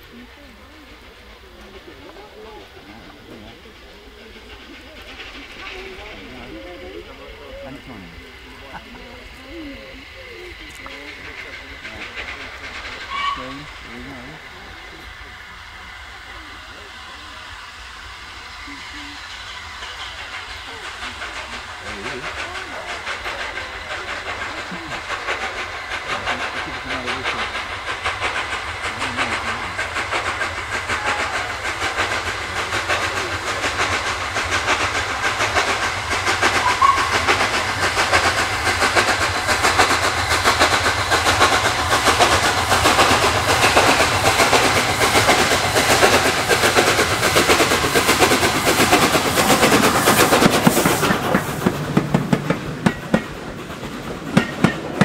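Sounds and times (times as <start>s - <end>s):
steam locomotive exhaust beat: 0.0s - 55.0s
wheels clicking over rail joints: 27.1s - 55.0s.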